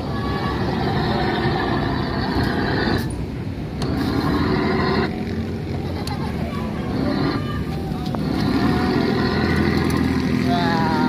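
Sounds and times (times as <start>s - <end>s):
toy car rolling over brick paving: 6.9s - 10.4s.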